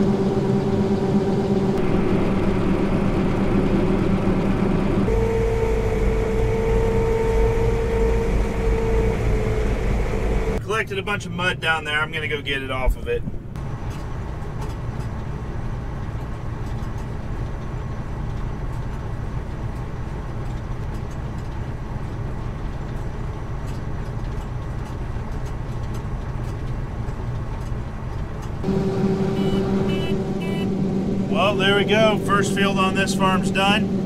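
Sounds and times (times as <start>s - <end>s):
steady hum: 0.0s - 14.2s, 26.8s - 34.0s
combine harvester engine drone: 0.0s - 34.0s.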